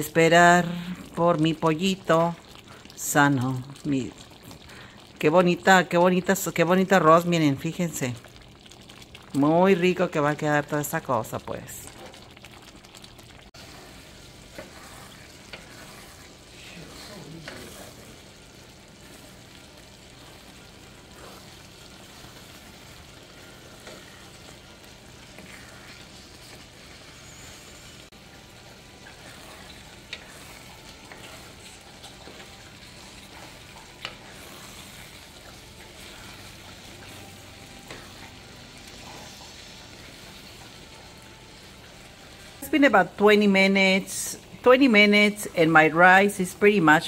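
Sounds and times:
rice sizzling in a skillet: 0.0s - 47.0s
spoon stirring food: 11.9s - 42.6s.

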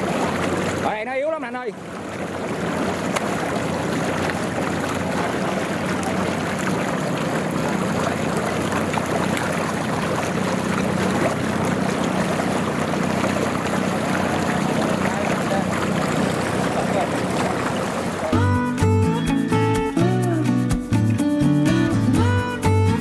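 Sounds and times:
water gushing: 0.0s - 18.6s.

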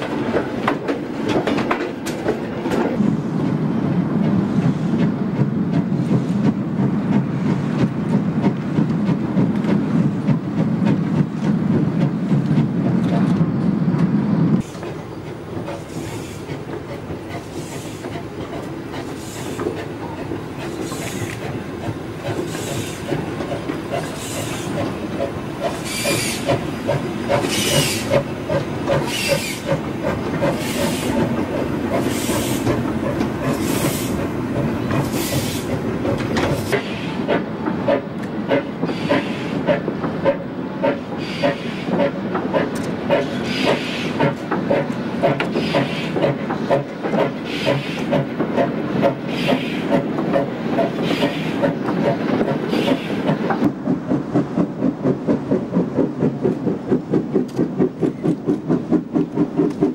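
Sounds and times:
steam locomotive exhaust beats: 0.0s - 59.9s
steam hiss: 14.6s - 34.2s, 35.0s - 35.8s, 36.5s - 53.6s.

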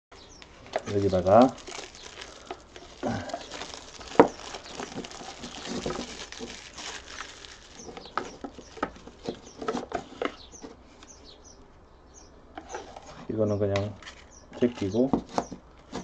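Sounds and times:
plastic wrap crinkling and tearing: 0.4s - 9.9s
sharp plastic crack: 0.4s - 9.9s.

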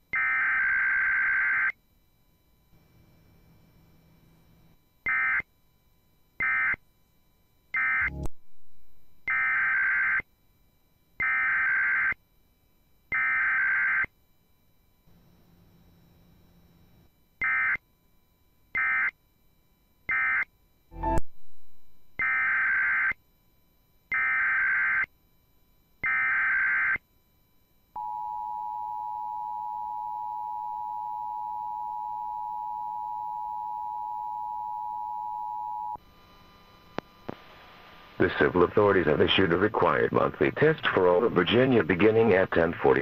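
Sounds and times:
two-tone alert signal: 20.9s - 22.4s.

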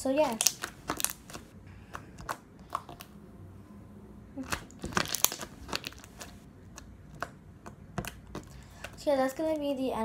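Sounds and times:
slime squished by hand: 0.2s - 3.1s, 4.4s - 9.0s.

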